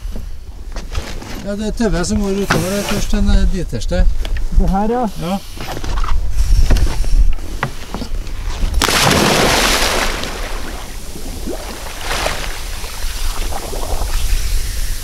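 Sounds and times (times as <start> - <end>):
water sloshing: 8.3 - 14.5
big splash into water: 8.7 - 14.5.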